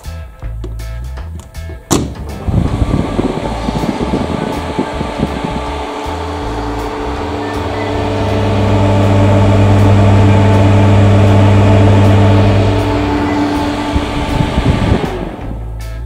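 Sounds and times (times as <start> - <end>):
duct fan humming: 0.6 - 16.0.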